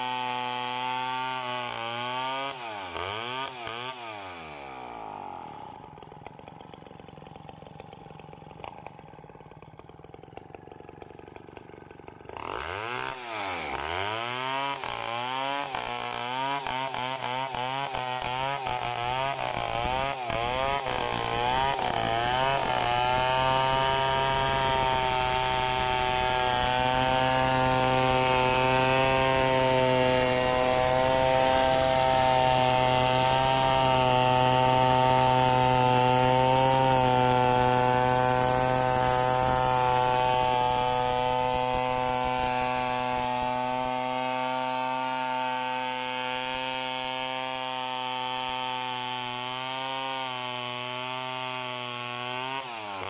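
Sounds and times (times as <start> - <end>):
chainsaw cutting log: 0.0 - 53.0.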